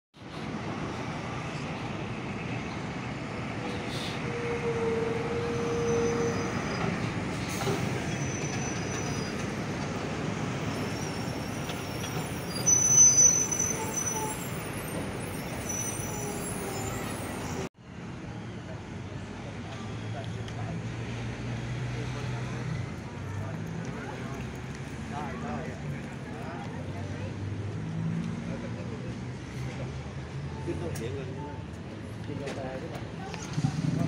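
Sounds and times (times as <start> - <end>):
road traffic: 0.2 - 34.0
high-pitched squeal: 10.6 - 17.7.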